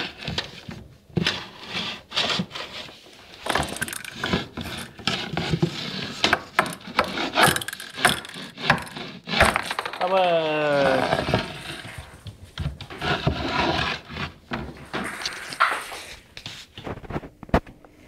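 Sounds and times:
objects knocking on wooden floor: 7.4s - 10.2s.

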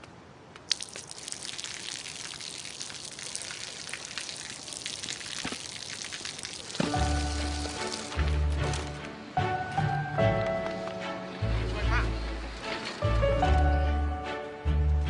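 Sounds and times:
water dripping on hard surface: 0.6s - 8.3s.

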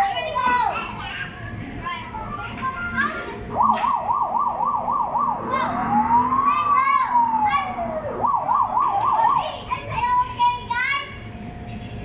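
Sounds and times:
electronic toy siren warbling: 3.5s - 9.6s
children calling out: 5.3s - 11.1s.

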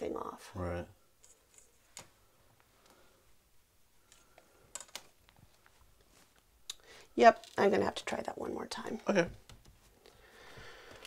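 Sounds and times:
faint clicks and taps: 9.3s - 10.2s.

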